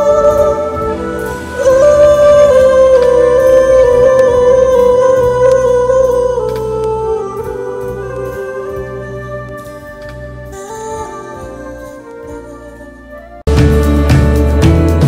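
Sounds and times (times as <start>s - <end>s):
soft backing music: 0.0s - 15.0s.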